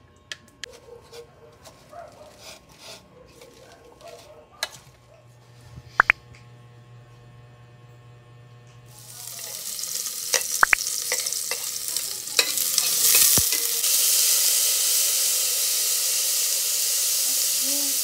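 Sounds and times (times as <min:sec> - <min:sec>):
garlic and onions frying: 0:08.8 - 0:18.0
metal ladle clinking on pot: 0:12.4 - 0:13.8.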